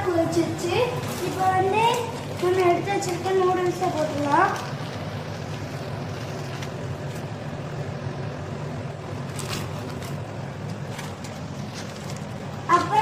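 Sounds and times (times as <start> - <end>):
gas burner rumble: 0.0 - 13.0
plastic bag crinkling: 0.1 - 7.5, 9.1 - 13.0.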